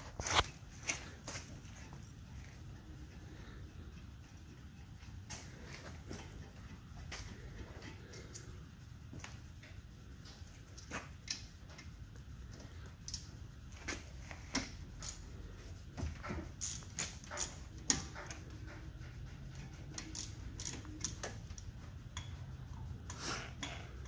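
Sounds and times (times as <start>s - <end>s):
hand tool clicking on metal: 20.0s - 22.4s.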